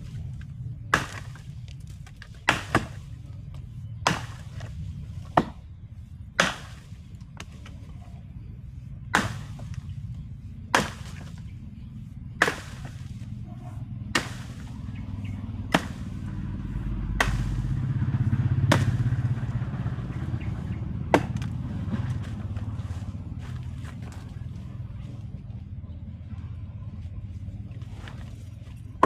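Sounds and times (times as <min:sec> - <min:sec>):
low rumble: 0:00.0 - 0:29.0
axe chopping into wood: 0:00.9 - 0:01.4, 0:02.0 - 0:03.0, 0:04.0 - 0:05.6, 0:06.4 - 0:06.8, 0:09.1 - 0:09.8, 0:10.7 - 0:11.4, 0:12.4 - 0:13.1, 0:14.0 - 0:14.8, 0:15.6 - 0:16.2, 0:17.2 - 0:17.8, 0:18.7 - 0:19.1, 0:21.1 - 0:22.1.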